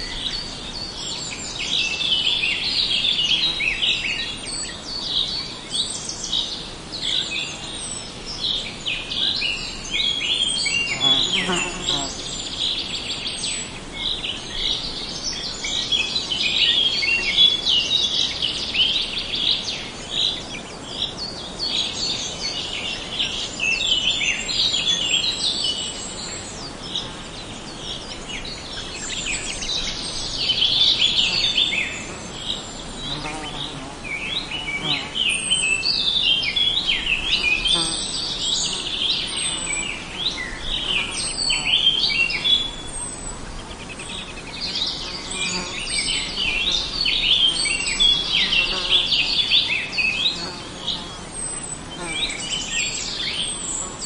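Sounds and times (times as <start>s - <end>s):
birds chirping and twittering: 0.0s - 54.0s.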